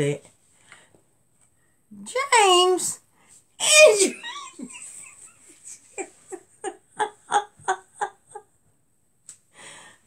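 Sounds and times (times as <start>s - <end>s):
woman laughing: 3.8s - 8.5s.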